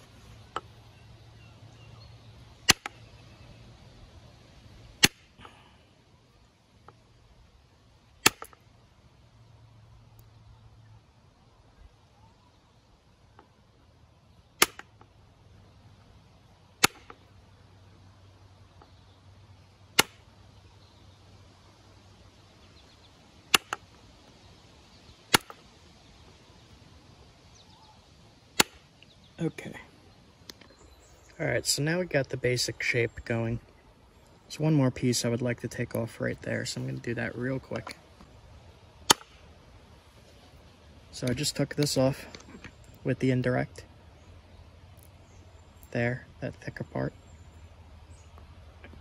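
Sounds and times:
antler striking stone punch knocks: 16.8s - 17.2s, 20.0s - 20.2s, 23.5s - 23.8s, 39.1s - 39.4s.

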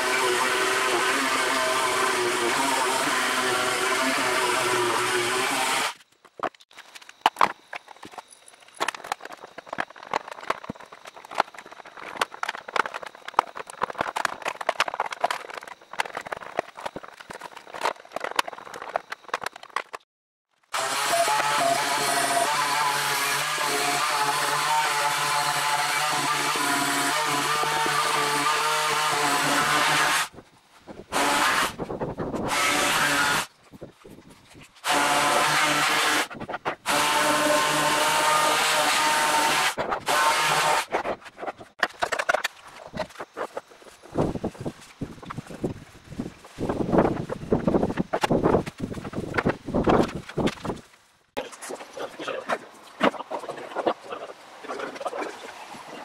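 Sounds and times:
electric sander on wood: 0.0s - 6.0s, 20.8s - 30.3s, 34.8s - 41.0s.

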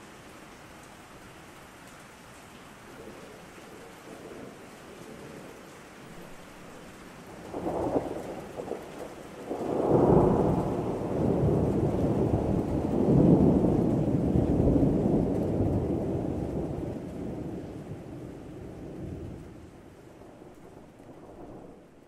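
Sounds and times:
steady rain: 0.0s - 22.0s
thunder rumbling: 7.2s - 22.0s.

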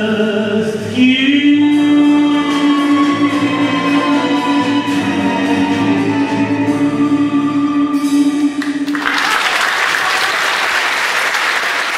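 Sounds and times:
person singing: 0.0s - 8.9s
audience applause: 8.6s - 11.9s.

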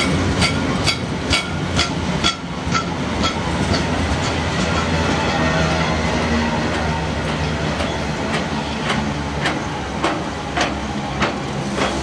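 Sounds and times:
train wheels clicking: 0.0s - 5.5s, 6.6s - 12.0s
freight train rumbling past: 0.0s - 12.0s.

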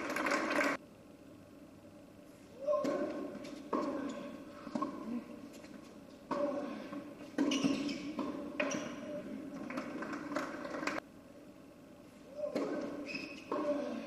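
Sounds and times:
racket striking tennis ball: 2.7s - 5.1s, 6.2s - 11.0s, 12.5s - 14.0s
shoe squeaks: 3.4s - 4.4s, 7.4s - 9.8s, 12.5s - 14.0s.

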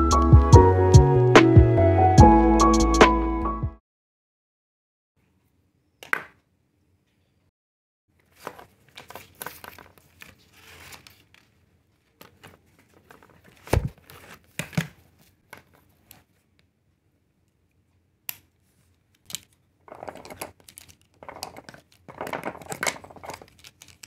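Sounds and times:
crinkling and tearing: 8.2s - 16.4s, 19.2s - 24.0s.

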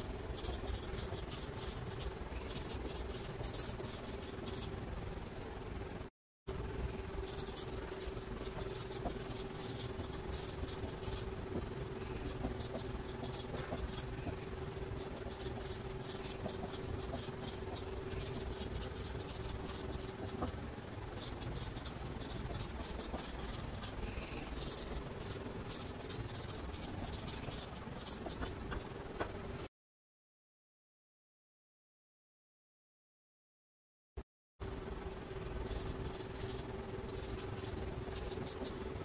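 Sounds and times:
steady hum: 0.0s - 29.7s, 34.6s - 39.0s
marker squeaking on paper: 7.3s - 11.3s, 12.2s - 14.4s, 21.2s - 28.6s.

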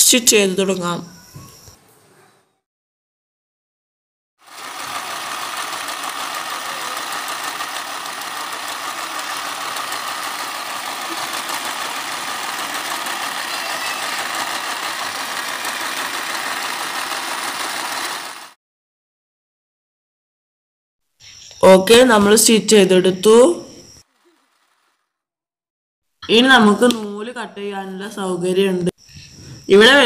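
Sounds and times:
sewing machine running: 4.4s - 18.6s, 24.0s - 25.0s.

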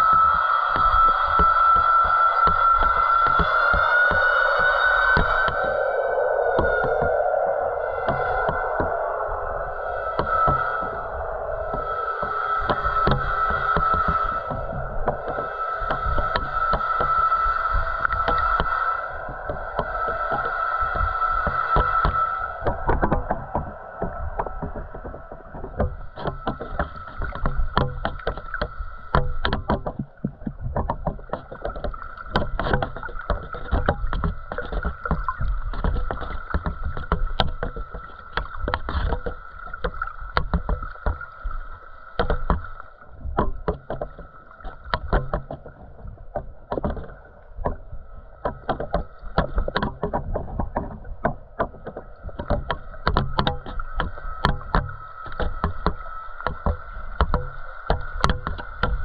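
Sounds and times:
low underwater rumble: 0.0s - 59.0s
irregular clicks and knocks: 19.4s - 59.0s.

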